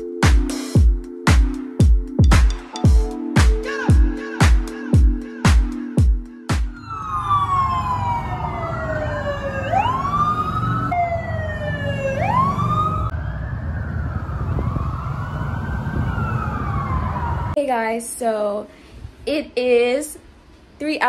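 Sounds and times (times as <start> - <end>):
police sirens: 6.7 - 17.6
traffic noise: 6.8 - 18.5.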